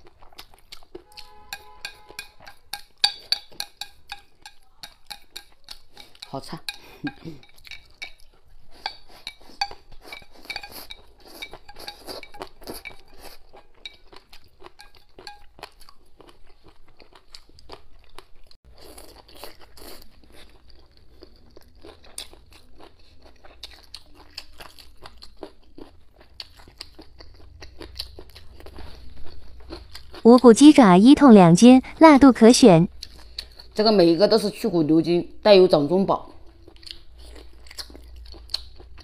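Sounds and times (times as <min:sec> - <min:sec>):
wet crunchy chewing: 0:00.0 - 0:03.3, 0:07.6 - 0:30.2, 0:36.6 - 0:39.0.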